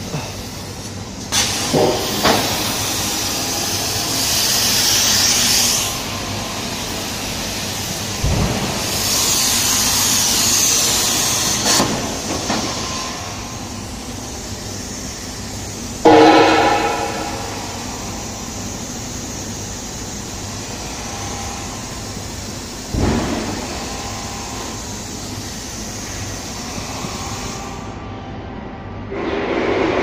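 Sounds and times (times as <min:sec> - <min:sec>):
plasma torch hissing: 0:00.0 - 0:27.9
loud buzzing tone: 0:16.0 - 0:18.6.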